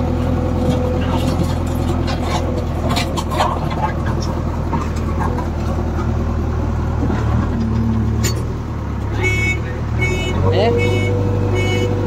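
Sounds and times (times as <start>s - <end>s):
diesel engine running: 0.0s - 12.0s
sharp rattles and clicks: 0.6s - 6.2s.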